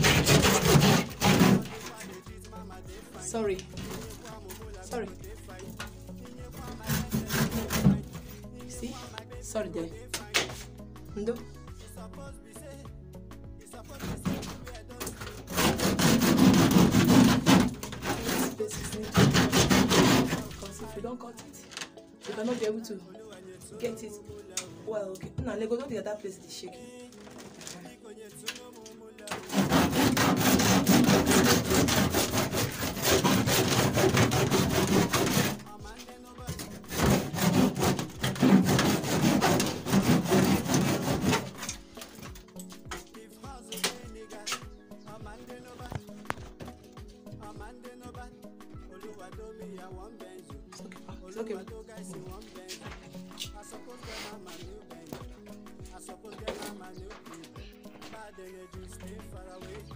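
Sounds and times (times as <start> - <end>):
hand saw cutting plaster: 0.0 - 2.4, 3.6 - 5.9, 6.5 - 9.1, 13.9 - 20.9, 29.3 - 42.7.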